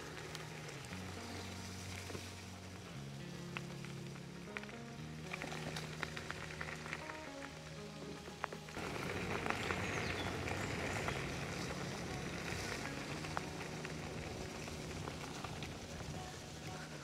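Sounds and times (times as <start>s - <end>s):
tyres crackling on wet dirt: 0.0s - 17.0s
small clicks and rattles: 3.5s - 7.6s.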